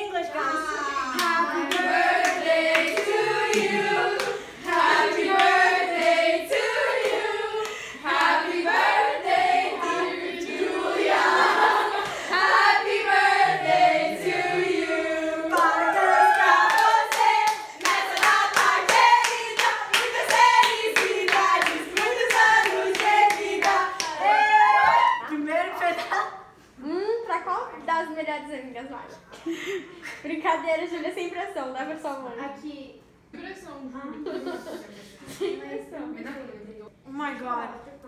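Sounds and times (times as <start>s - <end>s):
people clapping in rhythm: 1.1s - 9.0s, 15.5s - 24.3s
group singing: 1.1s - 24.7s.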